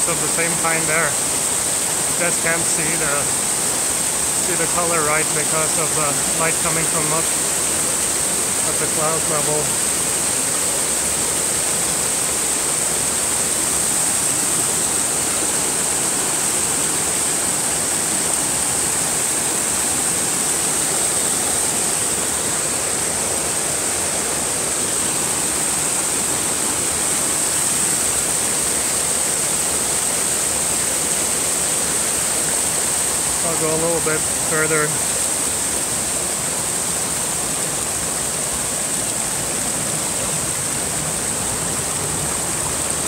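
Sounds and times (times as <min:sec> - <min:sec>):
high-pitched hiss: 0:00.0 - 0:10.4
stream rushing over rocks: 0:00.0 - 0:43.0.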